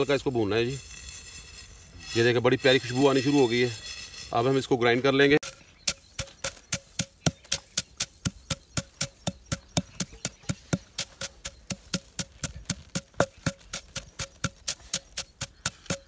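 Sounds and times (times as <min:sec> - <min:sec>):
pestle pounding in stone mortar: 0:05.4 - 0:16.0.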